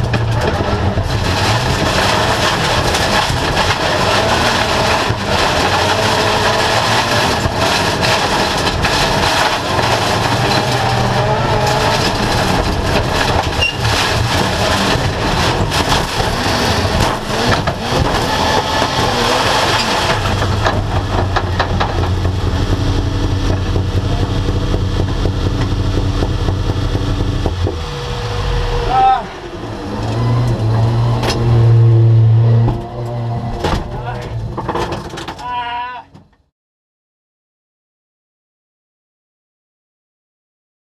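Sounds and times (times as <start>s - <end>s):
car crash bangs and knocks: 0.0s - 24.0s
race car engine running hard: 0.0s - 34.8s
car engine idling: 7.4s - 31.2s.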